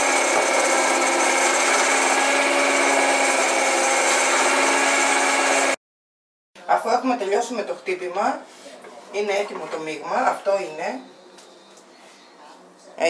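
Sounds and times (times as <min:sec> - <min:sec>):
stand mixer whisking batter: 0:00.0 - 0:05.8.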